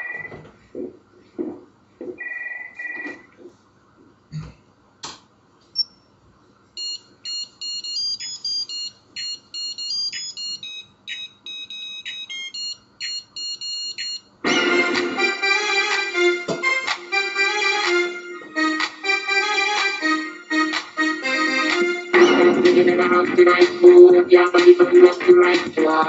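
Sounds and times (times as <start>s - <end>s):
electro dance music: 20.6s - 26.0s.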